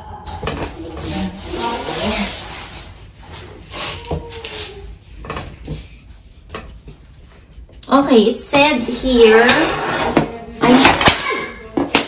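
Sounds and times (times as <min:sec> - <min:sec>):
plastic wrap rustling: 0:00.6 - 0:05.0.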